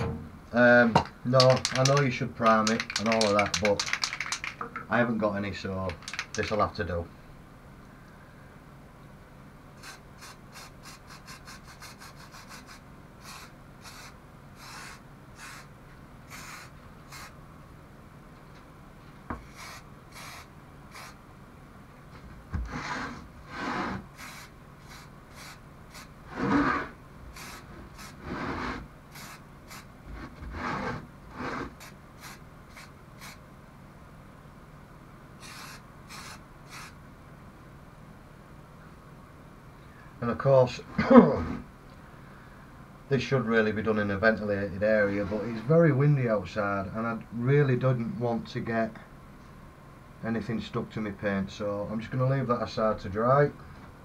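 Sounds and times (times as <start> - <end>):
spray can ball rattling: 1.3 - 4.7, 5.9 - 6.6, 19.5 - 21.2, 24.2 - 26.1, 29.1 - 29.9, 35.4 - 37.0
short spray hisses: 16.3 - 17.3, 19.4 - 21.2, 24.2 - 26.8, 27.4 - 29.9, 31.4 - 33.4, 35.4 - 37.0.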